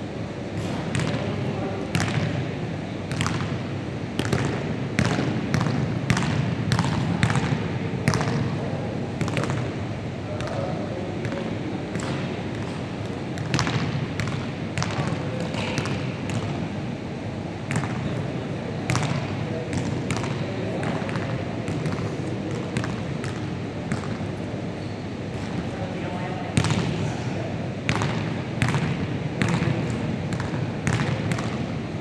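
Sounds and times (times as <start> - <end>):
basketball bouncing on wooden floor: 3.1 - 3.6, 4.2 - 8.4, 13.4 - 16.5, 27.9 - 31.6.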